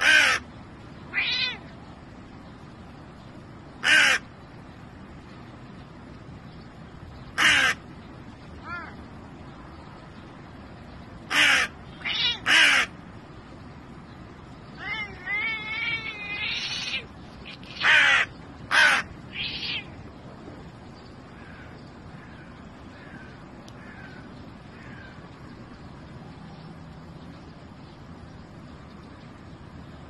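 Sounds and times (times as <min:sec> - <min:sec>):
crow cawing: 0:00.0 - 0:00.5, 0:03.8 - 0:04.3, 0:07.4 - 0:07.8, 0:11.3 - 0:13.0, 0:14.8 - 0:19.9, 0:21.4 - 0:25.2
wavering gurgling crow calls: 0:00.0 - 0:01.7, 0:03.8 - 0:04.3, 0:07.3 - 0:07.9, 0:11.2 - 0:13.1, 0:14.8 - 0:20.0, 0:21.3 - 0:25.3.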